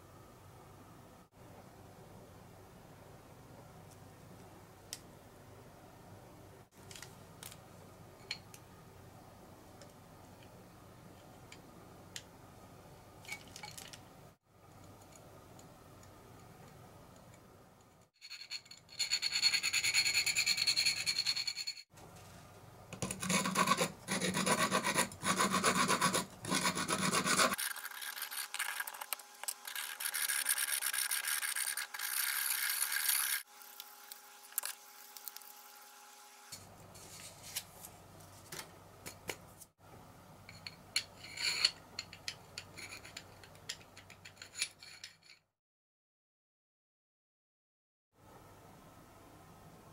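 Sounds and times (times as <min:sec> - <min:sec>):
hand file scraping metal pipe: 0:18.3 - 0:21.8, 0:23.2 - 0:33.4.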